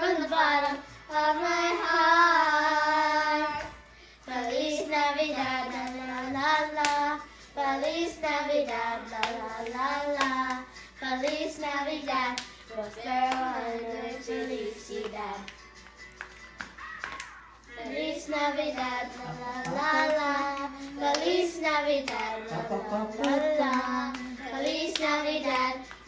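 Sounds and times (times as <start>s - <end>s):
child singing: 0.0s - 3.7s, 4.3s - 15.5s, 17.7s - 26.0s
hand claps: 5.7s - 7.2s, 7.8s - 11.6s, 12.2s - 13.6s, 14.9s - 18.0s, 18.6s - 26.0s.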